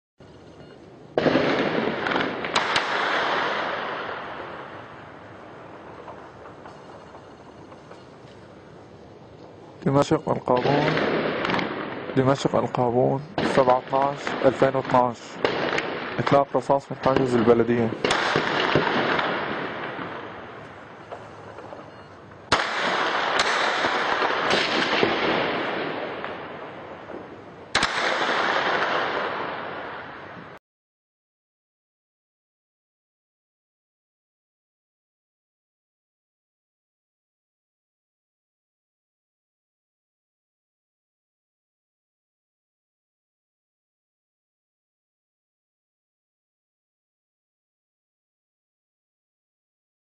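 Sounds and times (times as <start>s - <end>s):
heavy gunfire: 1.2s - 5.3s, 10.5s - 21.7s, 22.5s - 30.6s.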